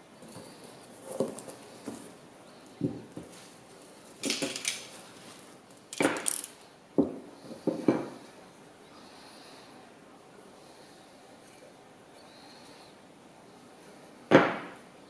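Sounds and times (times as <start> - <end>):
wooden knocks on a tabletop: 7.0 - 8.2.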